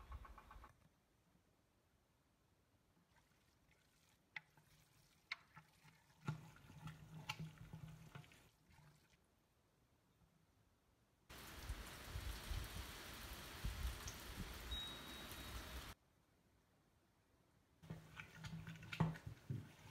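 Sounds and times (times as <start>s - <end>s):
hands squishing wet mash: 3.0s - 9.3s, 17.8s - 19.9s.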